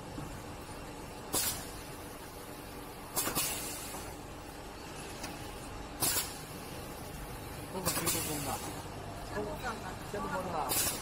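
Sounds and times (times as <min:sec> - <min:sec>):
compressed air hiss: 0:01.3 - 0:01.9, 0:03.1 - 0:04.1, 0:06.0 - 0:06.9, 0:07.8 - 0:08.7, 0:10.7 - 0:11.0.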